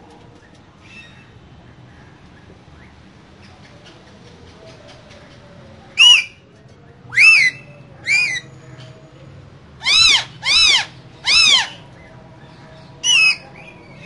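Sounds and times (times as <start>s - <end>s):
parakeets screeching: 7.1s - 8.5s, 9.8s - 12.0s, 13.0s - 14.0s.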